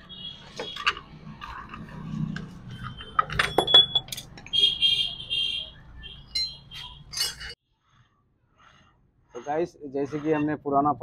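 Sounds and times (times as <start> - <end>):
steel bar clinking against gears: 6.4 - 7.6.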